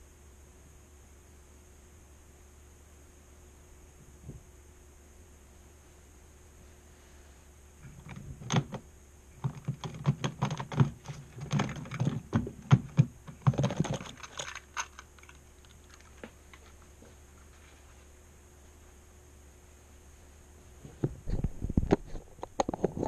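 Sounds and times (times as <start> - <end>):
faint steady hum: 0.0 - 23.0
fingers clicking plastic model: 9.4 - 16.3.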